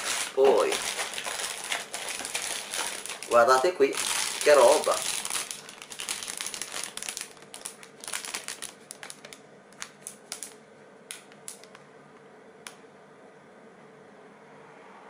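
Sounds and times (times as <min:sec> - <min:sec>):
plastic bag crinkling: 0:00.0 - 0:10.6.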